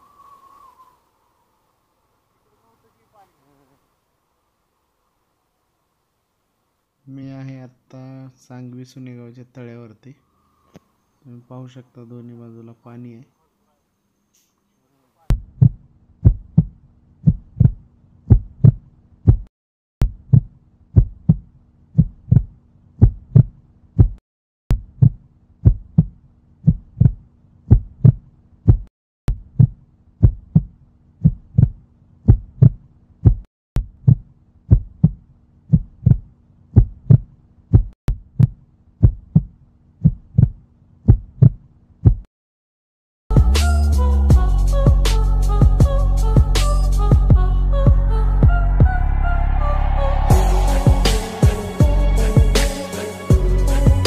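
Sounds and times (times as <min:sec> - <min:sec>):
heartbeat thumps: 0:15.3 - 0:20.4, 0:21.0 - 0:21.4, 0:22.0 - 0:30.7, 0:31.3 - 0:39.5, 0:40.1 - 0:42.3, 0:45.6 - 0:48.9, 0:50.3 - 0:52.6, 0:53.3 - 0:54.0.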